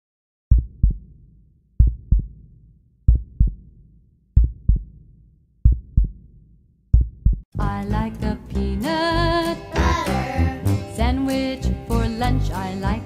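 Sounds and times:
heartbeat thumps: 0.5s - 1.2s, 1.8s - 2.5s, 3.1s - 3.8s, 4.4s - 7.5s.

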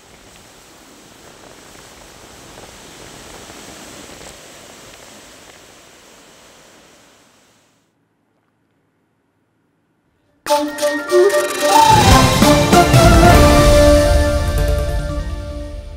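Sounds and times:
floodwater rushing: 0.0s - 7.6s.

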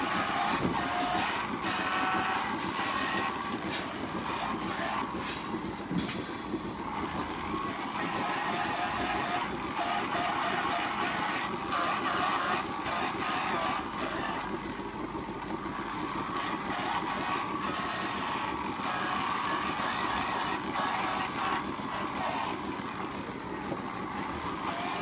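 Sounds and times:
electric brush whirring: 0.0s - 25.0s
spraying water: 0.0s - 25.0s.

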